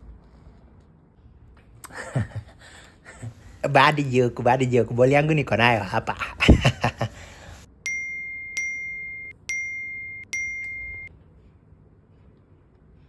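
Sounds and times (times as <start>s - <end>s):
electronic chime: 7.9s - 11.1s.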